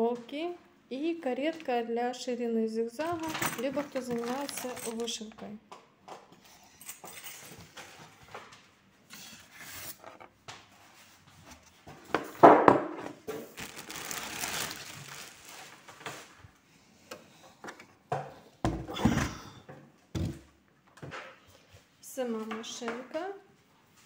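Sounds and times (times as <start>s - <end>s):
plastic bag crinkling: 3.2s - 5.3s, 13.3s - 16.3s.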